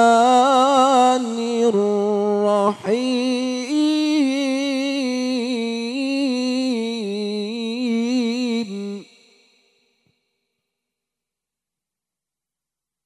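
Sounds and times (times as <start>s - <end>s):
man reciting melodically: 0.0s - 9.2s.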